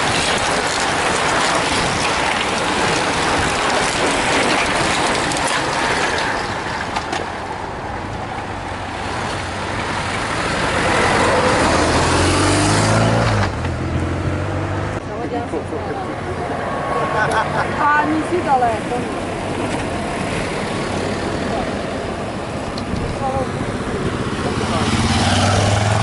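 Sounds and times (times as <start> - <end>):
bicycles rushing past: 0.0 - 7.6, 16.4 - 26.0
motor vehicle engine: 0.0 - 26.0.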